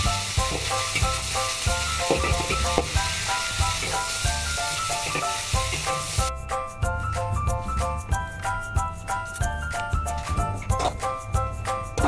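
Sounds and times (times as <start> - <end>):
food sizzling in a wok: 0.0 - 6.3
metal spatula stir-frying: 0.0 - 6.3
background music: 0.0 - 12.0.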